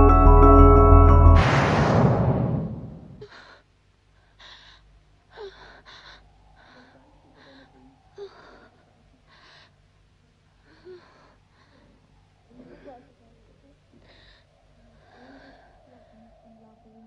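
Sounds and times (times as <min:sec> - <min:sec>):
loud music: 0:00.0 - 0:03.2.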